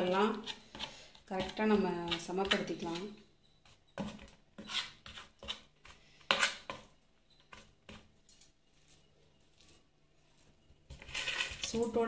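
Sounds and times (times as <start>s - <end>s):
metal spoon scraping metal plate: 10.9s - 12.0s.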